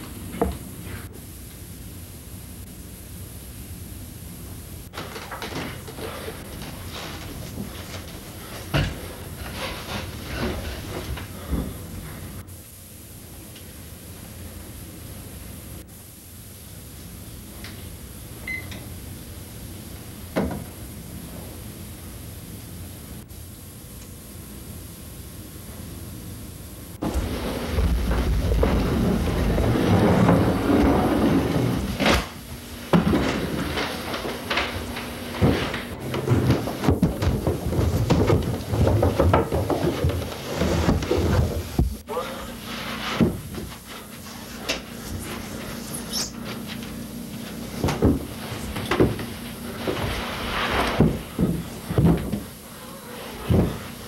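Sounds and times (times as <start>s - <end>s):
steady hum and hiss: 0.0s - 54.0s
person climbing stairs: 5.0s - 12.4s, 27.0s - 42.3s, 47.7s - 52.6s, 53.2s - 54.0s.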